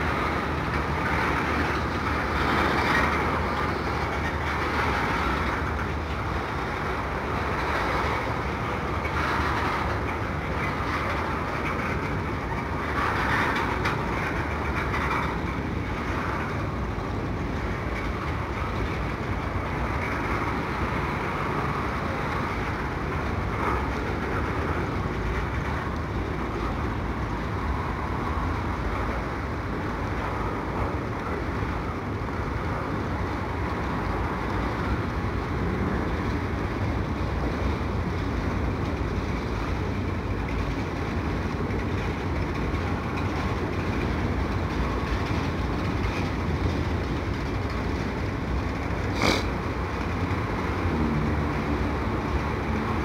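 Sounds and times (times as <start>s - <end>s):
train wheels on rails: 0.0s - 53.0s.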